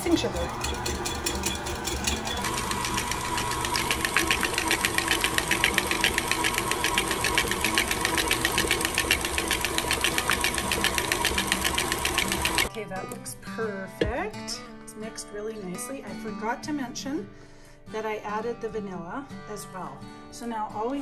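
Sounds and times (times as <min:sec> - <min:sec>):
electric mixer motor whine: 0:00.0 - 0:12.7
whisk clattering in bowl: 0:00.0 - 0:12.7.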